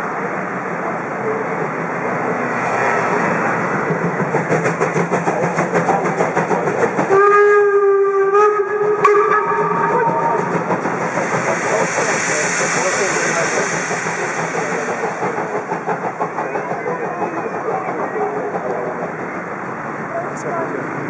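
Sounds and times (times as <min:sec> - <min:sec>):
steam locomotive hissing and puffing: 0:02.5 - 0:20.1
steam whistle blast: 0:07.1 - 0:10.5.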